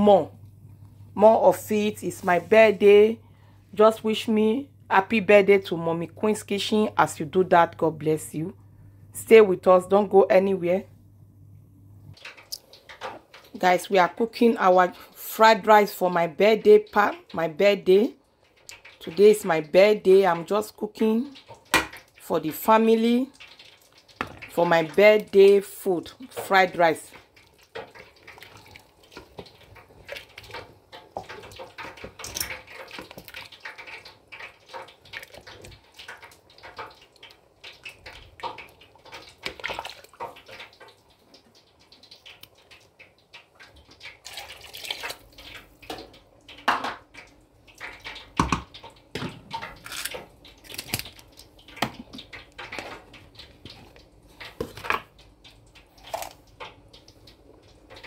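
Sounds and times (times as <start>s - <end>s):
liquid sloshing and dripping: 12.1s - 13.6s, 18.2s - 19.8s, 21.3s - 22.7s, 23.3s - 58.0s
wooden spoon knocking on pot: 48.3s - 49.5s.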